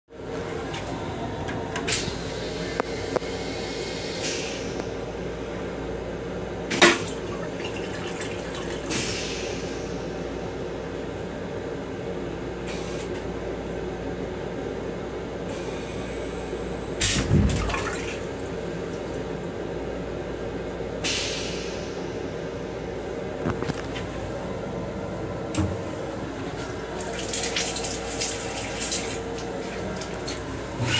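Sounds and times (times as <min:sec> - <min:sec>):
steady train hum: 0:00.1 - 0:30.9
toilet flush whoosh with thud: 0:17.0 - 0:18.3, 0:27.0 - 0:30.9.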